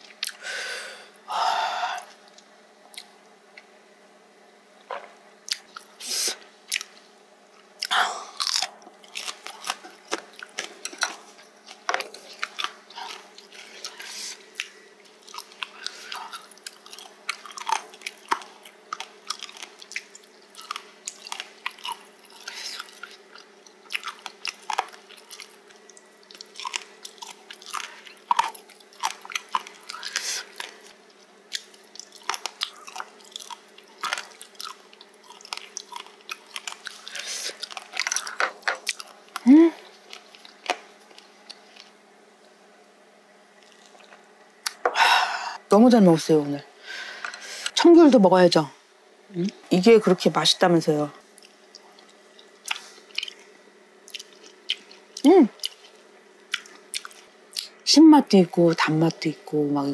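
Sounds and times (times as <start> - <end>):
chewing: 6.7 - 7.0, 7.6 - 42.0, 43.6 - 44.8, 51.2 - 57.8
crisp crunches of cartilage: 8.4 - 39.4.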